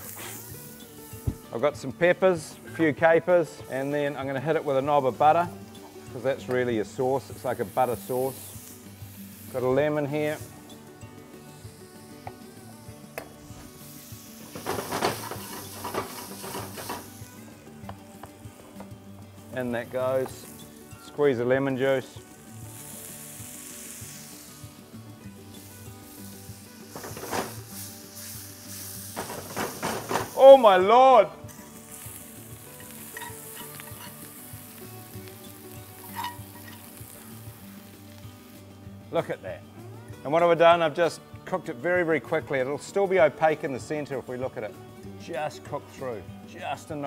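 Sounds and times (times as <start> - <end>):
vegetables sizzling in oil: 0.0 - 41.8
spoon scraping and clinking pan: 32.8 - 34.2, 36.0 - 36.9.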